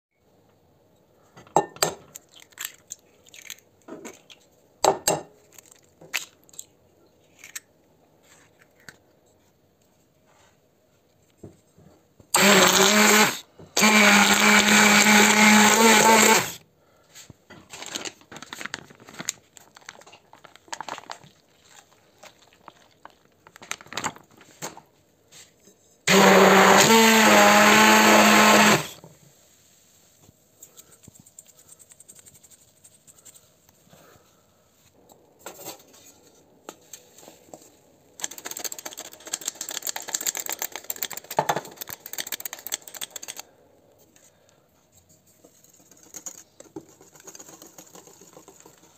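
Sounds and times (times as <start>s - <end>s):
immersion blender whisking eggs: 12.4s - 16.6s, 26.1s - 29.0s, 46.0s - 48.9s.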